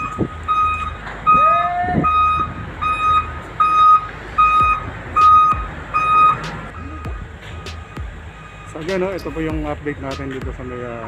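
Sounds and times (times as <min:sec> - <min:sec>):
reversing alarm beeping: 0:00.0 - 0:09.7
low engine rumble: 0:00.0 - 0:11.0.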